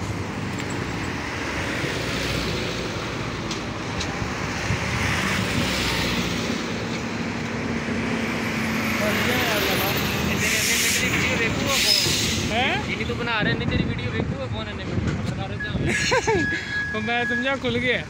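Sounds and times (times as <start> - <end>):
cars passing: 0.0 - 18.0
wind on microphone: 4.1 - 5.8.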